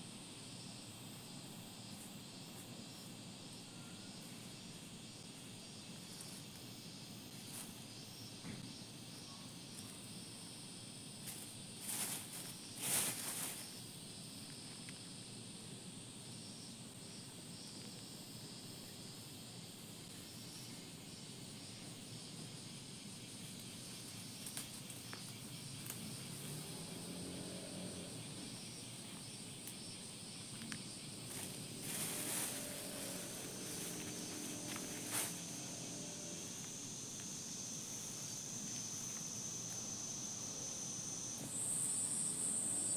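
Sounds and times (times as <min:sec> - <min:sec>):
insects buzzing drone: 0:00.0 - 0:42.9
short rustle: 0:11.2 - 0:13.8, 0:31.3 - 0:35.7.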